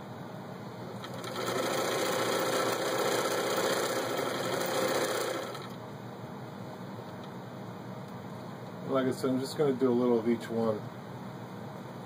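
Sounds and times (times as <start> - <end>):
sewing machine stitching: 1.0 - 5.8.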